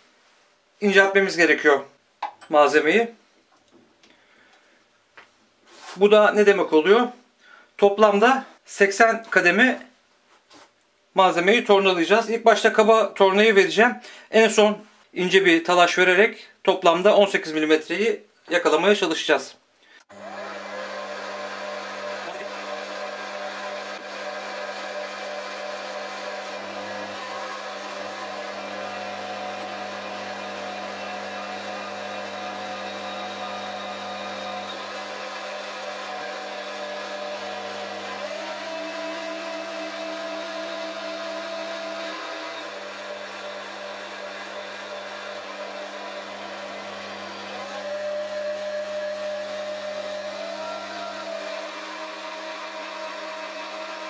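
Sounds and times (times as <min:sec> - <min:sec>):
metal lathe motor humming: 0:20.1 - 0:54.0.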